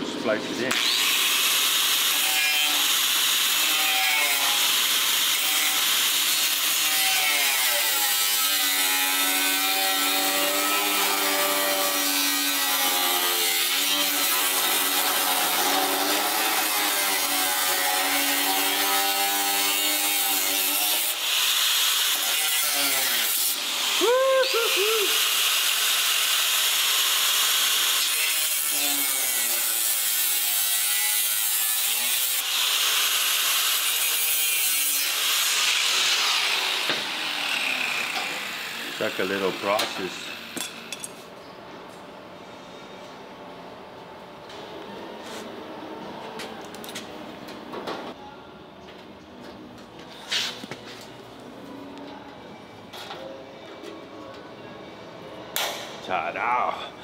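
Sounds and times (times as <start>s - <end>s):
angle grinder cutting steel: 0.7s - 41.1s.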